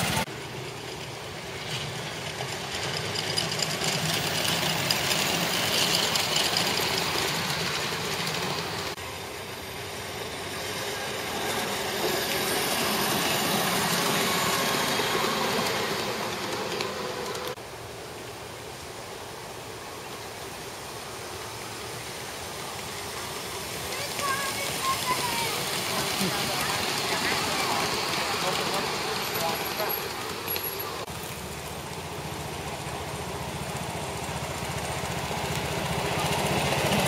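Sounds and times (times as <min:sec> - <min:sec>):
miniature train wheels clattering on rails: 0:00.0 - 0:09.0, 0:22.8 - 0:37.0.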